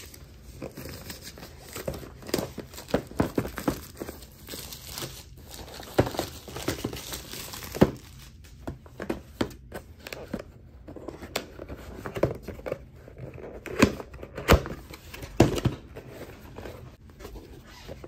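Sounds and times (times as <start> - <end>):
packaging crinkling and rustling: 0.0 - 8.7.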